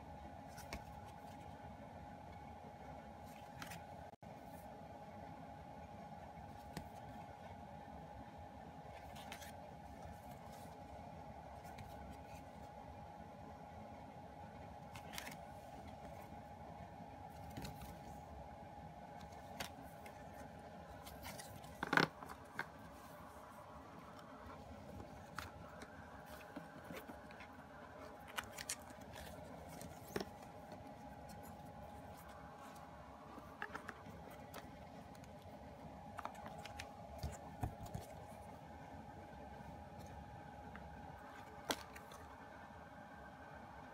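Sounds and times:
faint steady hum: 0.0 - 43.9
card and paper clicks and scrapes: 3.3 - 3.8, 9.0 - 10.8, 14.9 - 16.3, 19.2 - 38.4, 40.8 - 42.4.

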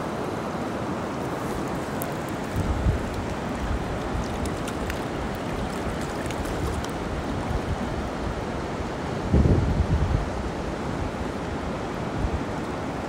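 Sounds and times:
river water rushing: 0.0 - 9.4, 10.1 - 13.0
wind buffeting microphone: 2.3 - 8.6, 9.2 - 12.5.

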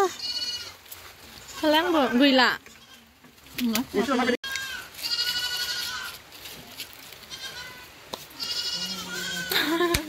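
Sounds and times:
high wavering bleat-like calls: 0.0 - 0.8, 4.0 - 6.2, 7.3 - 9.6.

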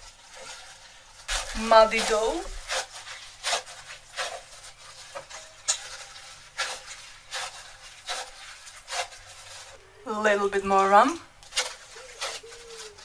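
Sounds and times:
gloved hand kneading dough in bowl: 0.0 - 13.0
plastic glove rustling: 0.0 - 13.0.

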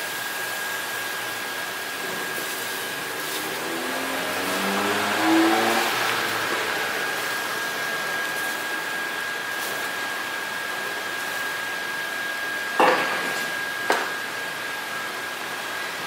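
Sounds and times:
steady rushing hiss: 0.0 - 12.2.

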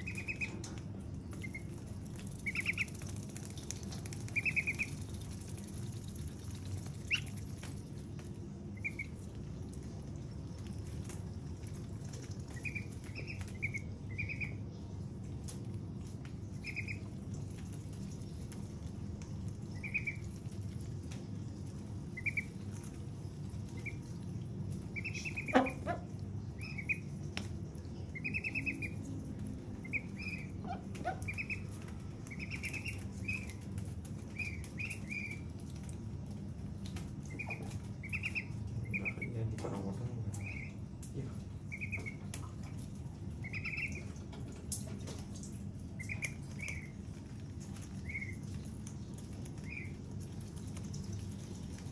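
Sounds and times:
ducklings peeping: 0.0 - 7.9, 8.7 - 9.8, 10.5 - 15.0, 16.2 - 18.7, 19.4 - 20.8, 21.6 - 27.4, 28.0 - 35.6, 37.2 - 41.0, 41.6 - 42.7, 43.3 - 44.3, 45.9 - 48.6, 49.4 - 50.1.

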